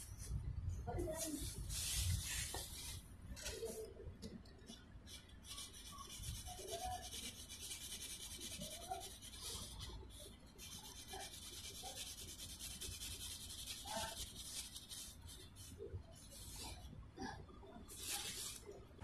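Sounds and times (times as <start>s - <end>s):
pencil scratching on paper: 5.1s - 16.9s, 17.9s - 18.6s.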